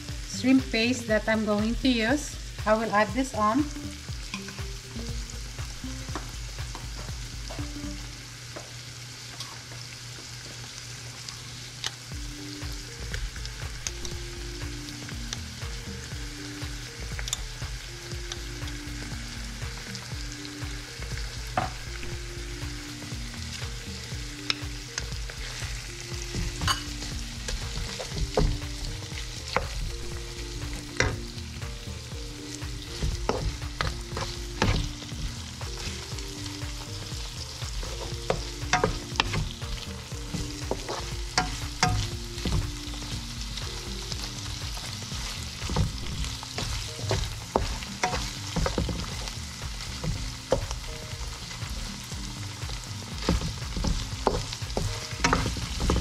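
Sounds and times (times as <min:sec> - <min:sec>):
food sizzling in a wok: 0:00.0 - 0:56.0
wooden spatula stirring and scraping: 0:32.7 - 0:36.3, 0:37.1 - 0:51.8, 0:53.0 - 0:56.0.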